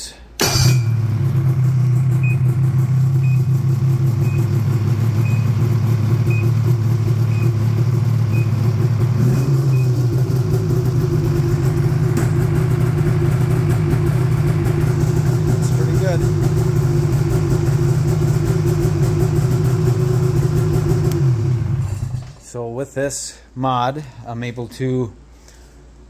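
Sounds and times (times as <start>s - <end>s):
snowmobile engine idling: 0.9s - 22.1s
short electronic beeps: 9.3s - 10.0s.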